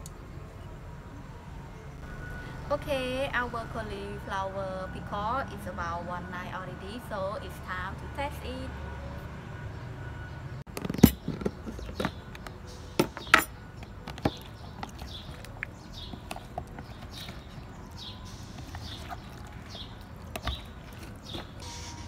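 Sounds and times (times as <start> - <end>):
small birds chirping: 10.9 - 22.0
handling of pickled vegetables: 13.8 - 22.0.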